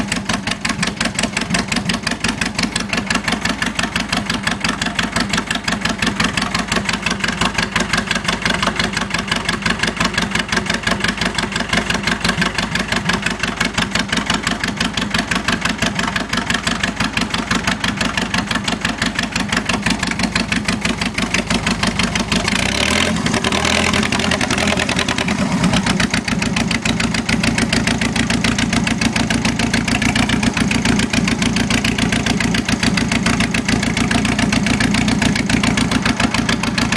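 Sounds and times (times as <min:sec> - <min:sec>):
tractor engine running: 0:00.0 - 0:36.9.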